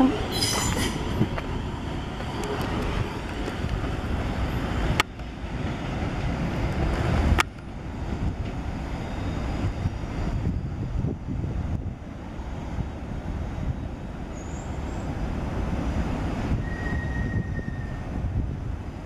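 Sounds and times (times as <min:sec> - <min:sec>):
electric train rumbling: 0:00.0 - 0:19.0
wind buffeting microphone: 0:00.0 - 0:19.0.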